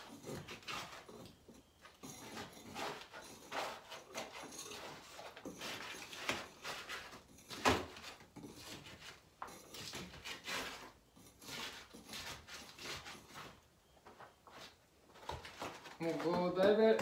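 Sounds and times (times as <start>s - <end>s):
scraping wall coating: 0.0s - 17.0s.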